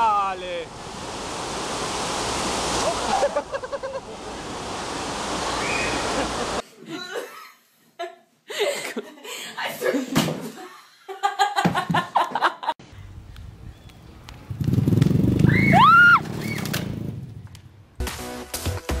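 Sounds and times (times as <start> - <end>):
small motorbike engine revving: 14.4 - 17.4.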